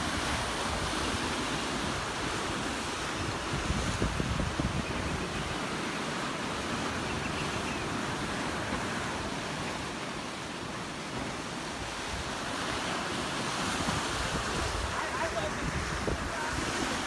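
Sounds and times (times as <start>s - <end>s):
wind buffeting microphone: 0.0s - 5.8s, 11.8s - 17.0s
surf breaking on rocky shore: 0.0s - 17.0s.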